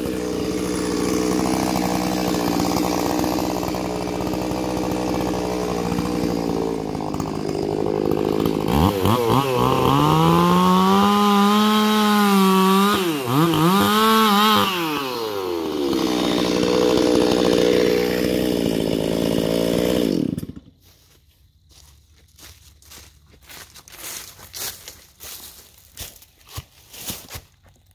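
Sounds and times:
chainsaw cutting wood: 0.0 - 21.2.

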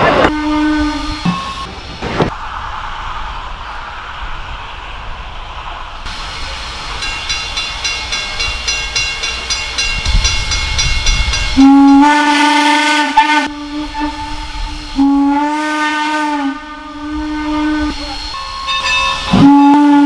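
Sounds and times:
steam locomotive exhaust beats: 0.0 - 20.0
steam whistle blast: 0.1 - 1.7, 11.6 - 18.4, 19.1 - 20.0.

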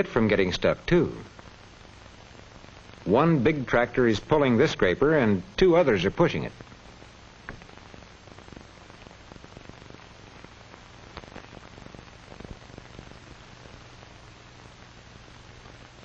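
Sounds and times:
film soundtrack hiss: 0.0 - 16.0
low steady hum: 0.0 - 16.0
clicks and crackles: 7.4 - 14.2.

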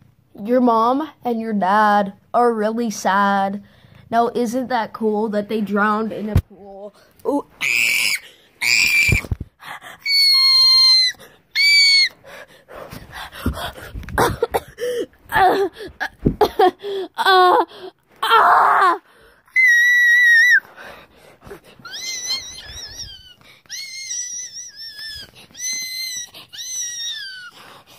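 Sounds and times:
high-pitched squeals and cries: 7.3 - 12.4, 17.2 - 20.9, 21.5 - 27.9.

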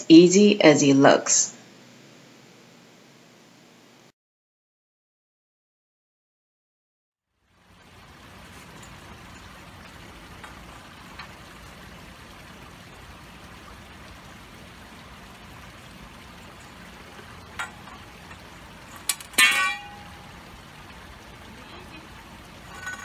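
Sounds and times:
water trickling: 7.3 - 23.0
metal tube clanking on concrete: 17.5 - 20.3, 22.6 - 23.0.

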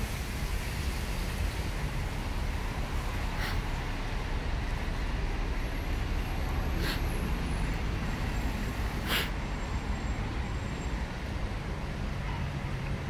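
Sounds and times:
passing cars and buses: 0.0 - 13.0
short hisses: 3.3 - 3.8, 6.8 - 7.1, 9.0 - 9.3.

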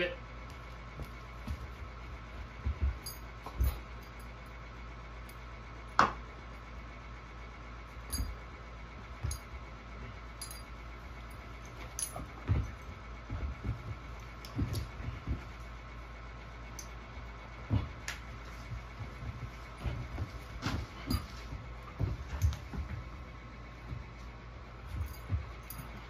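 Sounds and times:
faint steady hum: 0.0 - 26.0
dogs thumping on floor: 0.5 - 4.0, 11.7 - 15.9, 17.6 - 24.2, 24.8 - 26.0.

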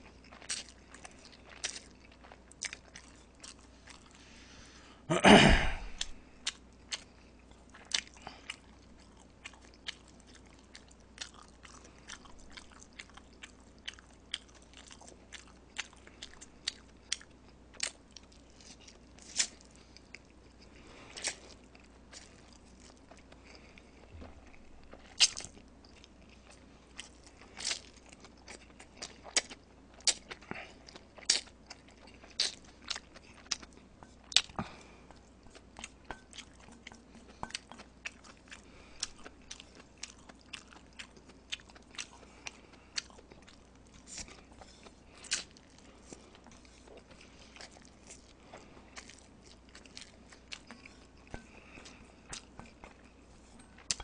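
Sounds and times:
chewing and slurping noodles: 0.0 - 4.4, 6.0 - 54.0.

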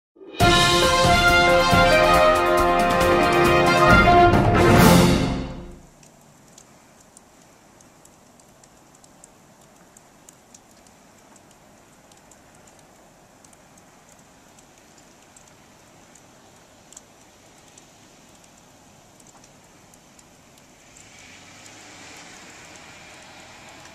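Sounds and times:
music: 0.2 - 5.8
snowfall hiss: 0.4 - 23.9
light high ticks: 5.9 - 23.9.

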